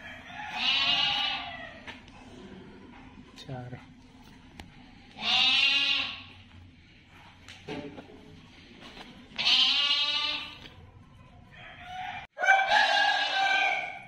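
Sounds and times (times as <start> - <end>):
goats bleating: 0.5 - 1.6, 5.2 - 6.3, 9.4 - 10.6.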